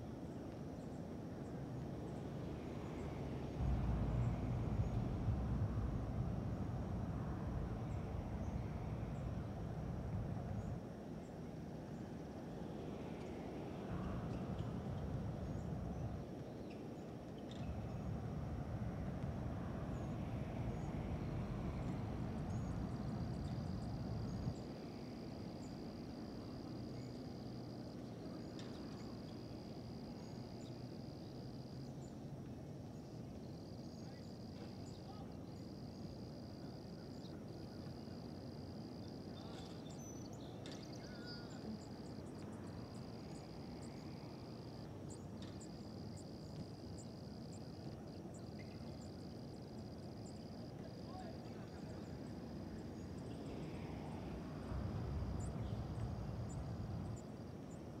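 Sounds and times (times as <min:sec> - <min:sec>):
low background rumble: 0:01.5 - 0:11.3, 0:17.6 - 0:27.1, 0:53.2 - 0:57.8
low rumble: 0:03.4 - 0:10.8
high insect trill: 0:33.0 - 0:58.0.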